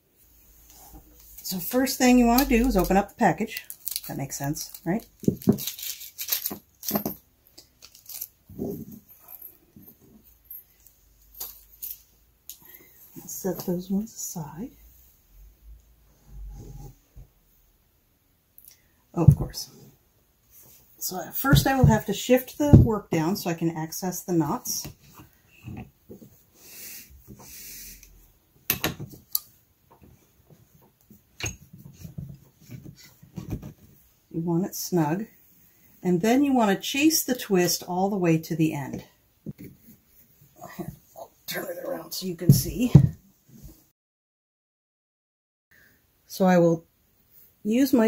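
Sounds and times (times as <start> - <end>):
packet crinkling and tearing: 3.5 - 6.9, 7.6 - 8.4.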